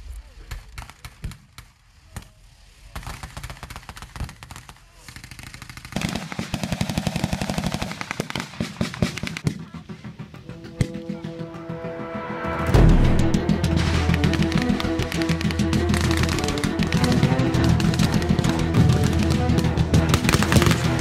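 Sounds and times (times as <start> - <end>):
rapid gunfire bursts: 2.9 - 10.4, 13.7 - 21.0
rifle shots: 3.0 - 9.6, 19.6 - 21.0
music: 9.4 - 21.0.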